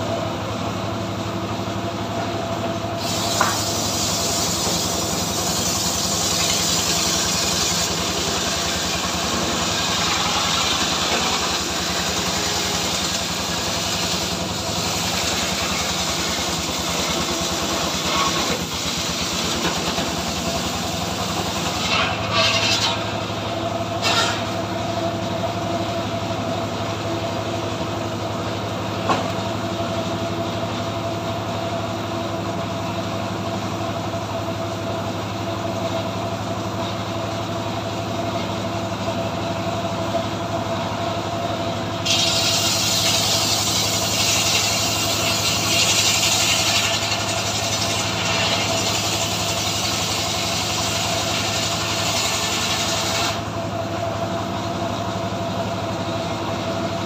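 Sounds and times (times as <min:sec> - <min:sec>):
sawmill engine running: 0:00.0 - 0:57.0
saw blade cutting log: 0:03.0 - 0:23.2, 0:24.0 - 0:24.6, 0:42.0 - 0:53.5.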